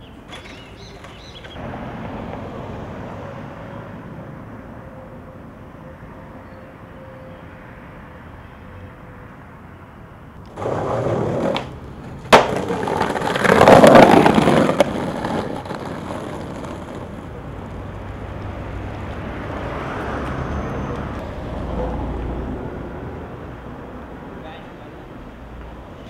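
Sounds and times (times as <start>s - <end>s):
skateboard wheels rolling on pavement: 0.0s - 5.4s, 10.0s - 26.0s
skateboard clack: 10.5s - 17.8s.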